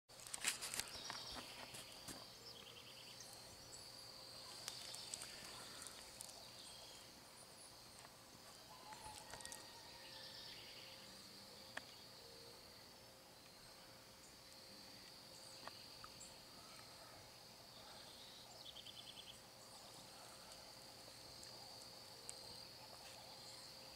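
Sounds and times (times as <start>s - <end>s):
high-pitched insect trill: 0.6s - 17.0s.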